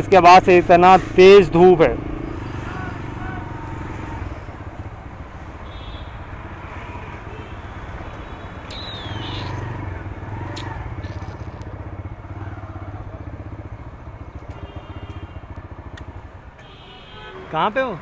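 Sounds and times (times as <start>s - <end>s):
road noise: 0.0s - 18.0s
motorcycle engine running: 8.9s - 16.4s.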